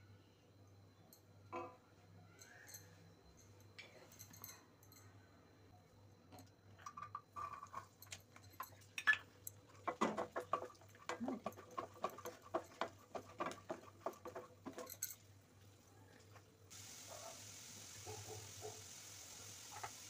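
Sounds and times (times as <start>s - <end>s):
spatula stirring against pan: 9.6s - 15.0s
garlic crackling in hot oil: 16.7s - 20.0s.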